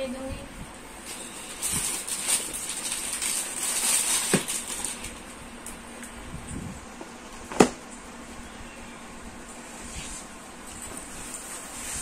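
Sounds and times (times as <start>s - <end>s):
plastic packaging crinkling: 1.0s - 5.4s.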